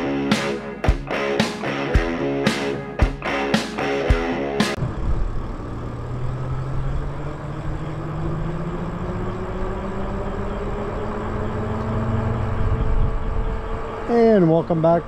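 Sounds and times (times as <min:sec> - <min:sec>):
electric motor whine: 0:06.4 - 0:14.9
wind noise: 0:12.0 - 0:14.1.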